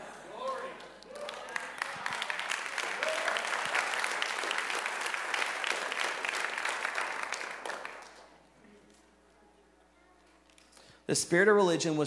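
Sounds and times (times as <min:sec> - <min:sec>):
congregation applauding: 0:00.4 - 0:08.4.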